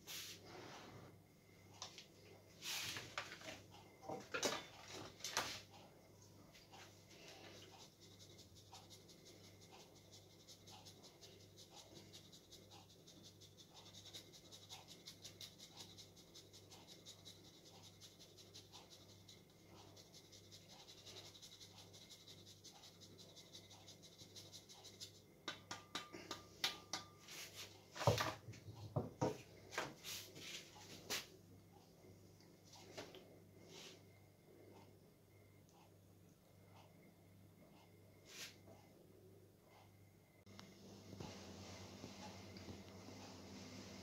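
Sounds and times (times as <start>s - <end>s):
cheese grating on metal grater: 7.5s - 25.2s.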